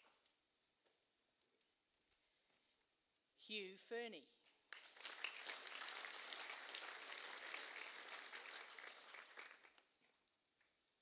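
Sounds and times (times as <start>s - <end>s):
audience clapping: 4.7s - 10.3s.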